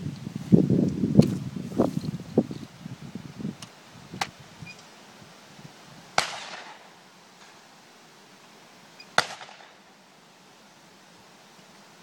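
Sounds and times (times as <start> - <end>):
shotgun shots echoing: 6.2 - 6.8, 9.2 - 9.8.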